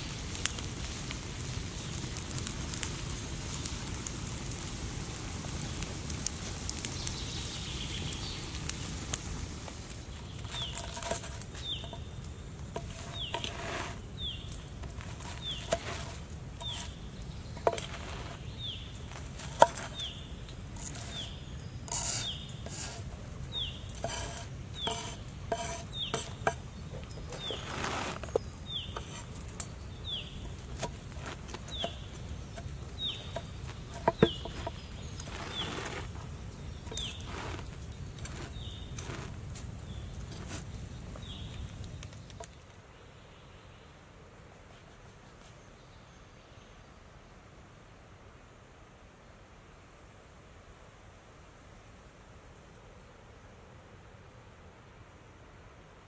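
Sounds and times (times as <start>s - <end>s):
open fire crackling: 0.0s - 43.1s
bird chirping: 16.6s - 30.8s, 31.6s - 37.6s.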